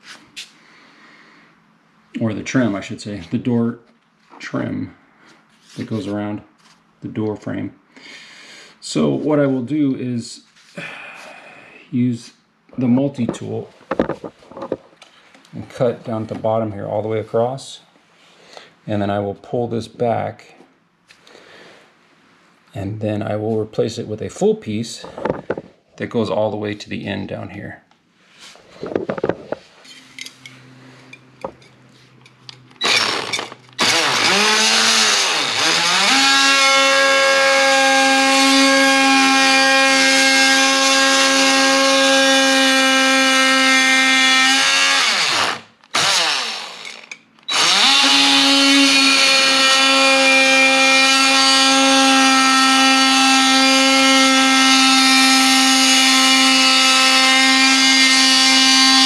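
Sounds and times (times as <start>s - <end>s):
oscillating multi-tool whine: 32.8s - 59.0s.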